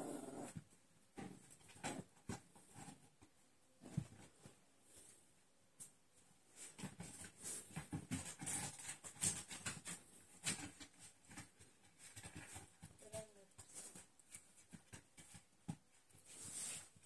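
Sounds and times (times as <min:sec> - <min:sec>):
puppy paws pattering on wood: 0:06.6 - 0:17.0.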